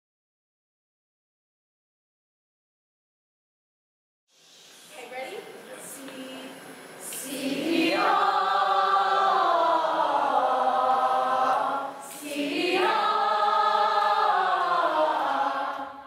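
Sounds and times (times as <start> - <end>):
group singing a cappella: 7.0 - 16.0.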